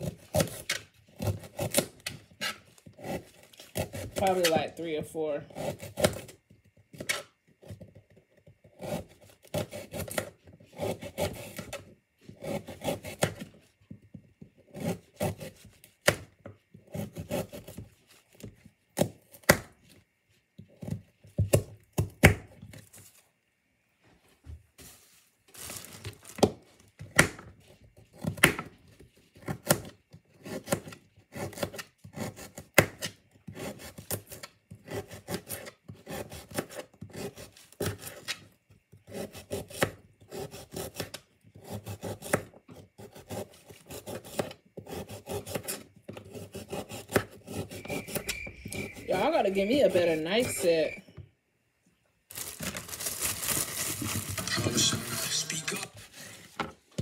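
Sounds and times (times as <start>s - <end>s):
knife sawing carrots: 0.0s - 4.7s, 5.5s - 6.4s, 8.7s - 13.6s, 14.6s - 15.8s, 16.8s - 17.9s, 29.4s - 50.8s, 53.8s - 56.4s.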